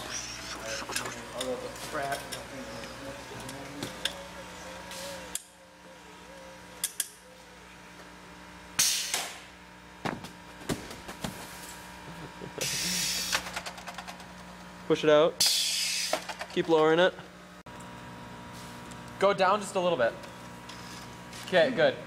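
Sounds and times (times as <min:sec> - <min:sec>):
pneumatic air hiss: 0:08.8 - 0:09.5, 0:12.6 - 0:13.5, 0:15.4 - 0:16.3.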